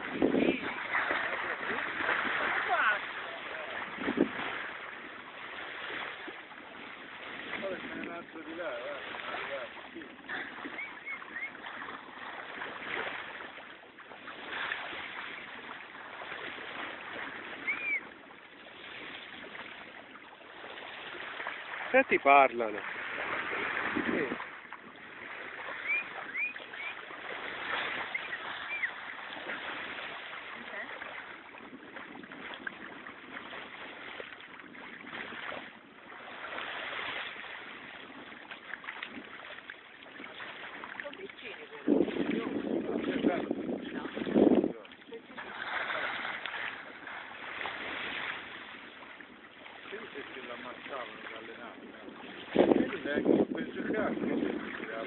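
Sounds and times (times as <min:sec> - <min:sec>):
water sloshing and splashing: 0:00.0 - 0:55.0
dolphin whistle: 0:10.6 - 0:11.6, 0:17.6 - 0:18.1, 0:25.7 - 0:27.1, 0:28.0 - 0:29.0.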